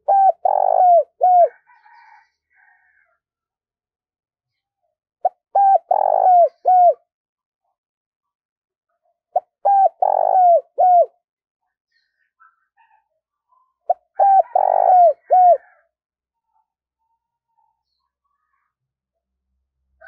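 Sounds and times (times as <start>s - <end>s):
dove cooing: 0.0s - 2.1s, 5.2s - 7.0s, 9.4s - 11.1s, 13.9s - 15.8s.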